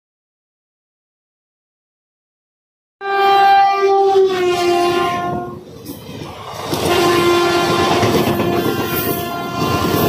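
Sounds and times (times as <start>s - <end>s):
locomotive horn blasts: 3.0s - 5.6s, 6.8s - 10.0s
train wheels rattling on rails: 4.6s - 10.0s.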